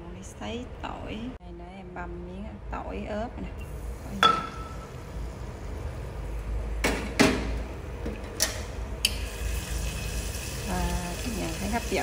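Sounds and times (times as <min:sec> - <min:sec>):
kitchen utensils knocking: 0:04.2 - 0:04.8.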